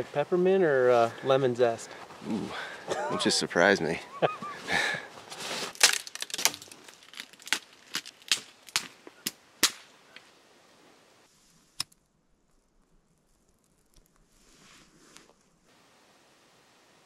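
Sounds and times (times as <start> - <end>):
dry twigs snapping: 5.7 - 10.2, 11.8 - 14.3.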